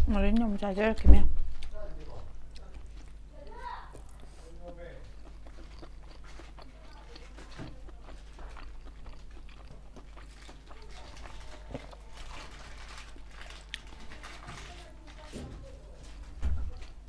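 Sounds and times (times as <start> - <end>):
low steady hum: 0.0 - 17.0
chewing with wet mouth clicks: 0.2 - 14.8
biting into boiled egg: 2.5 - 14.1.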